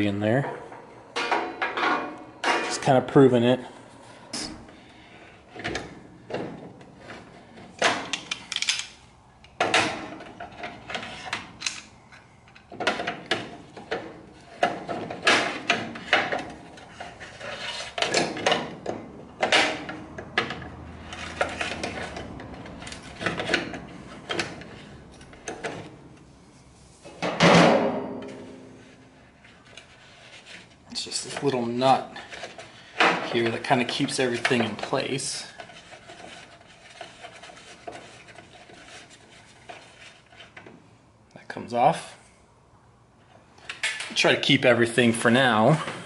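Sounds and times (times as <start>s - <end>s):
pliers clicking and scraping: 8.1s - 9.6s.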